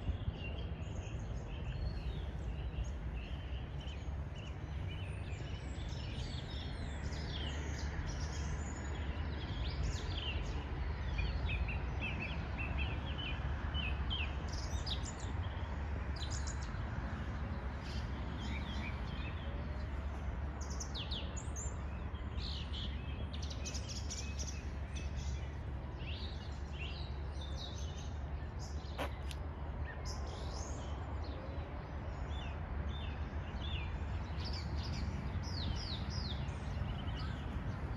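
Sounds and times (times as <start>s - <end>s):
small birds chirping: 0.0s - 37.9s
steady low rumble: 33.0s - 37.9s.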